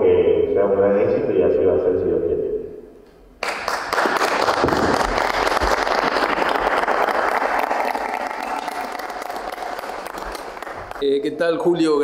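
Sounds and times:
small group clapping: 3.4 - 11.3.

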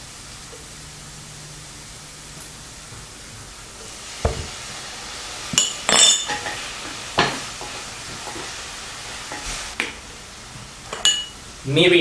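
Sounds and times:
sauce sizzling in a pan: 0.0 - 12.0
spatula stirring and knocking: 4.2 - 4.6
metal spoon clinking on ceramic: 5.6 - 6.6, 10.9 - 11.3.

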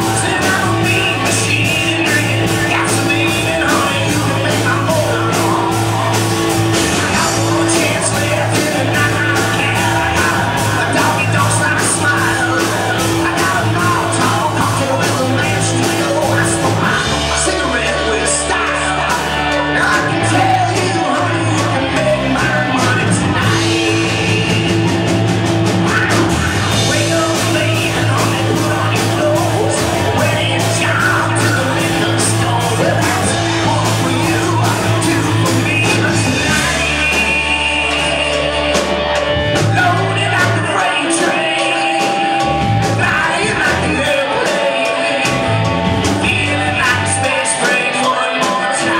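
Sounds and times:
drums with cymbal beat: 0.0 - 48.9
lead singer singing: 0.0 - 48.9
rock band playing: 0.0 - 48.9.

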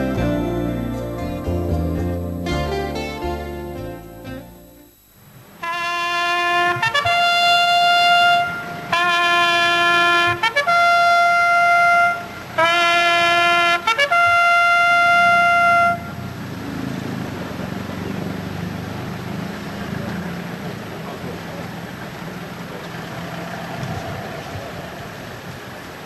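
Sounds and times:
solo trumpet call: 5.6 - 16.3.

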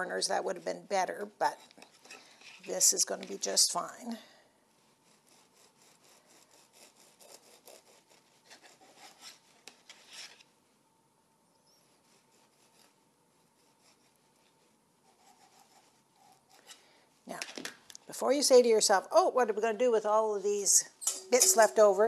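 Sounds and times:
bread knife sawing crust: 5.0 - 10.4, 11.8 - 13.0, 15.0 - 16.8.

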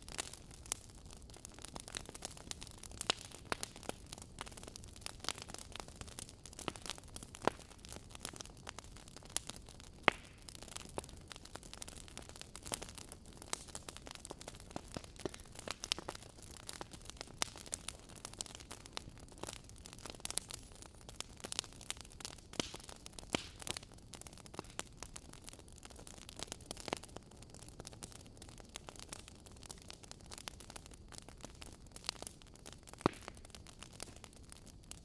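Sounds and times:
wood fire crackling: 0.0 - 35.0.

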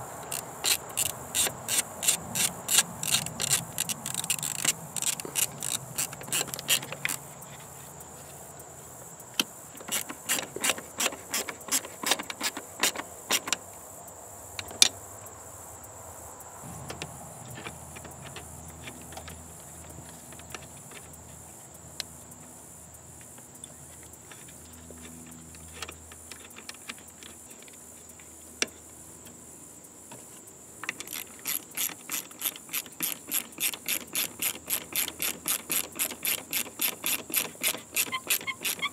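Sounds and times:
metal handling clicks: 0.2 - 7.2
socket ratchet clicking: 0.2 - 7.4, 9.4 - 13.6, 30.8 - 38.9.

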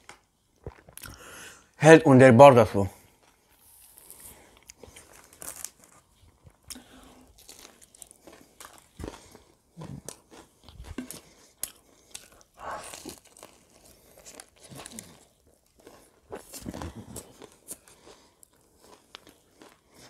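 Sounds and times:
wet mouth clicks: 0.6 - 1.2
crispy coating crunching: 2.9 - 20.0
biting and chewing: 3.0 - 20.0.

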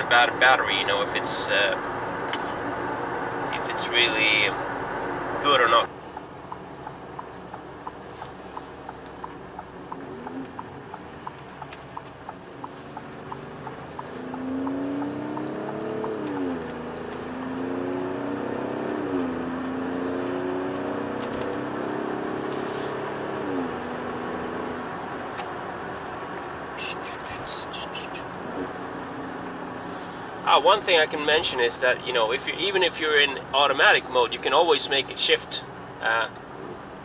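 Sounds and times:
car engine accelerating: 0.0 - 31.6
turn signal ticking: 0.8 - 20.2, 26.2 - 29.6.

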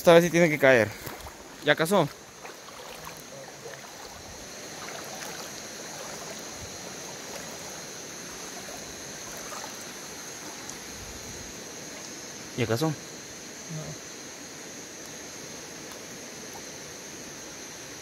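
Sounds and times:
night insects trilling: 0.0 - 18.0
river water over rocks: 0.1 - 12.5.

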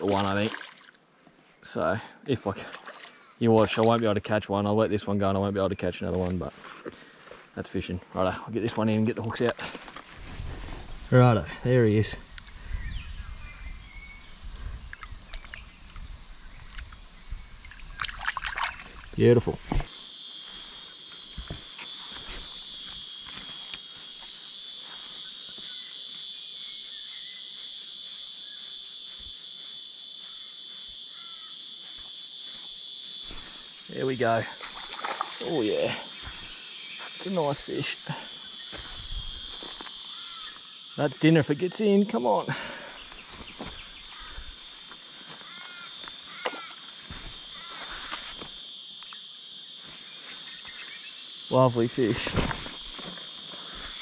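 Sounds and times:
insects buzzing: 0.0 - 54.0
bird calls: 30.2 - 32.0, 40.0 - 44.6, 47.5 - 48.3.

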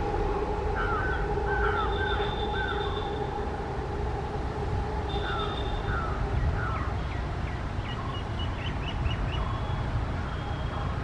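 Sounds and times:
trains rumbling: 0.0 - 11.0
birds chirping: 0.7 - 3.4, 5.1 - 11.0.

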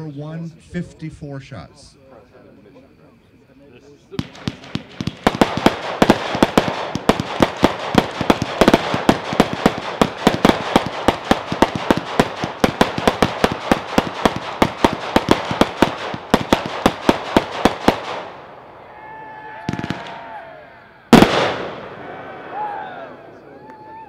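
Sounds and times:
firework cake popping: 4.2 - 18.3.

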